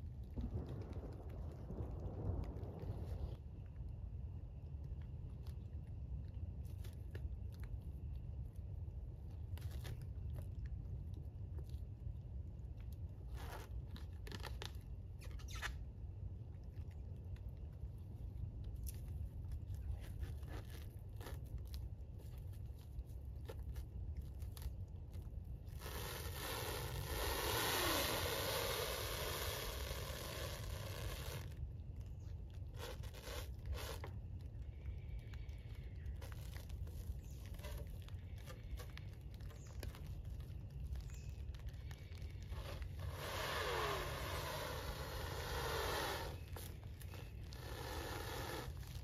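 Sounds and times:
low steady rumble: 0.0 - 49.0
plastic stretch wrap screeching: 13.3 - 15.9, 19.7 - 49.0.

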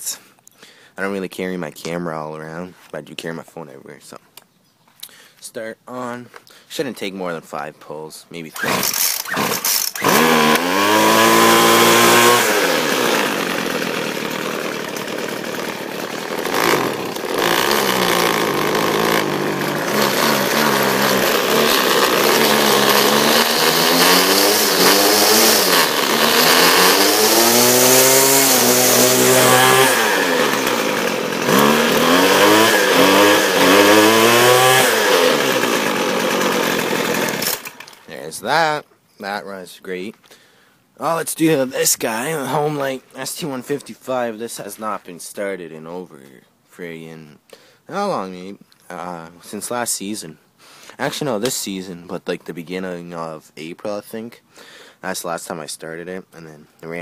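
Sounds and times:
small gas engine revving: 8.5 - 38.1.

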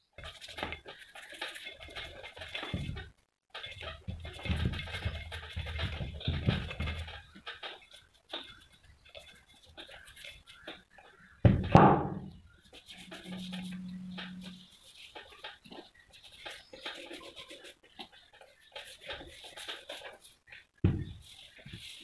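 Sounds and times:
plastic brush scrubbing metal gear: 3.6 - 11.0, 12.6 - 22.0
low steady hum: 12.2 - 15.0.

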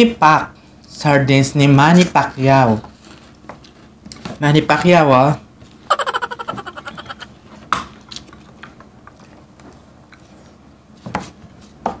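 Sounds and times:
quiet chewing: 8.0 - 10.6.

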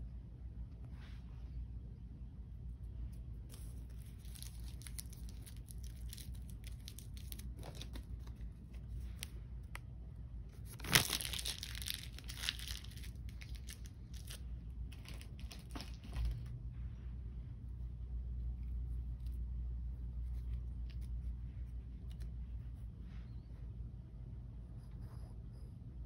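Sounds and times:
plastic wrapper crinkling and tearing: 3.5 - 9.8, 10.6 - 16.3.

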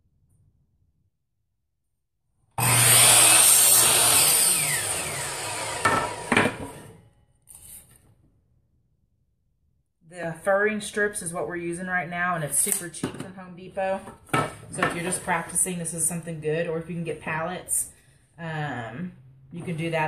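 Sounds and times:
miter saw cutting wood: 2.6 - 7.0
saw blade spinning down: 2.6 - 7.0.

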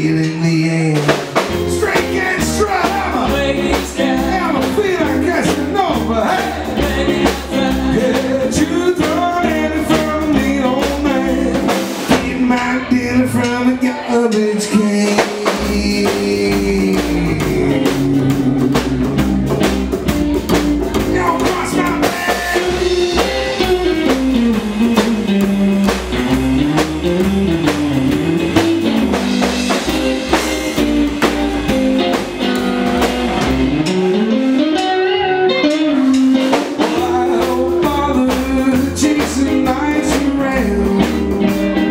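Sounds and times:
electric guitar: 0.0 - 41.9
rock and roll band playing: 0.0 - 41.9
upright double bass: 0.0 - 41.9
drum kit steady beat: 0.3 - 41.9
bending lead melody: 1.4 - 41.9.

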